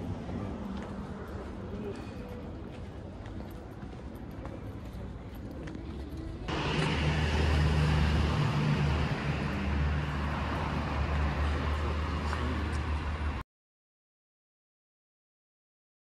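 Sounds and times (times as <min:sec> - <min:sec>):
street traffic: 0:00.0 - 0:13.4
vehicle engine hum close by: 0:04.4 - 0:13.4.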